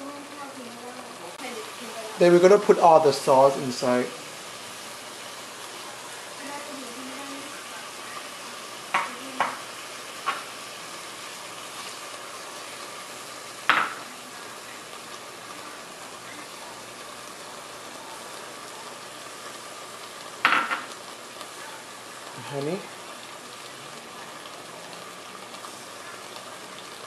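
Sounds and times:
meat sizzling in a pot: 0:00.0 - 0:27.0
kitchenware clinking: 0:13.7 - 0:14.1, 0:20.4 - 0:20.9.

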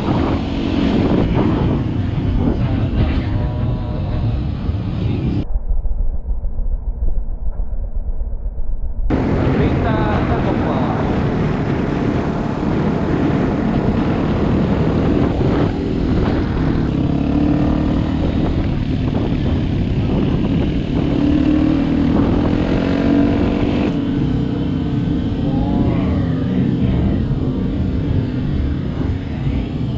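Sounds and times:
wind rumble on microphone: 0:00.0 - 0:29.9
motorcycle engine running: 0:09.1 - 0:29.9.

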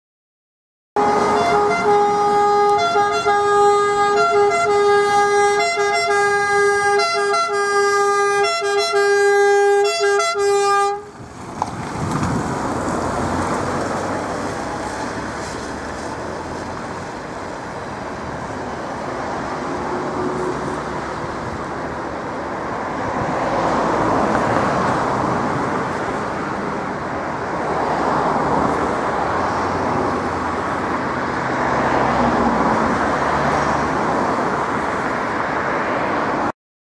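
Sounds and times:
ambulance air horn siren: 0:01.0 - 0:11.2
road traffic and engines: 0:01.0 - 0:36.6.

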